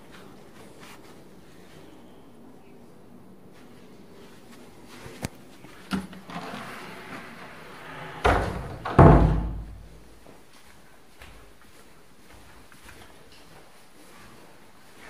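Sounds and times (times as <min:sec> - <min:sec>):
door sliding: 0:05.9 - 0:09.9
door heavy thuds: 0:08.2 - 0:09.9.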